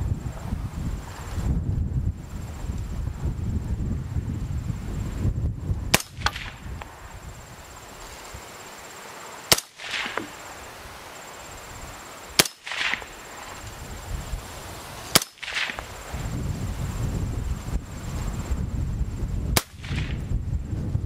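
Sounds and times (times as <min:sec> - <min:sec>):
rifle shots echoing: 0:05.9 - 0:06.6, 0:09.5 - 0:10.4, 0:12.4 - 0:13.6, 0:15.1 - 0:16.0, 0:19.6 - 0:20.2.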